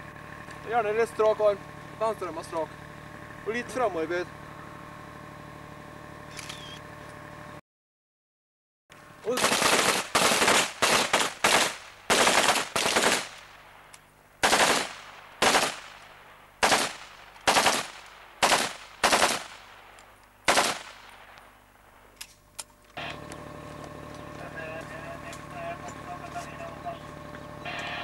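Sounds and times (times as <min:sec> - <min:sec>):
rifle fire echoing: 0:09.3 - 0:22.1.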